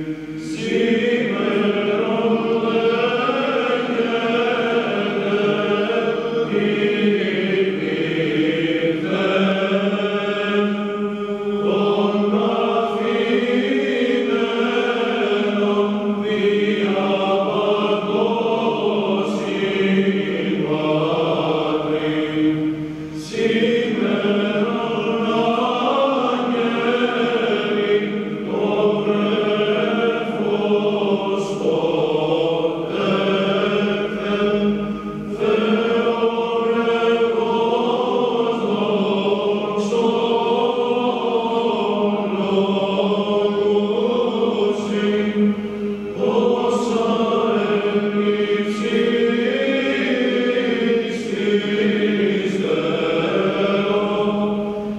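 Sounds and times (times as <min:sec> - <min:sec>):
male choir chanting: 0:00.0 - 0:54.9.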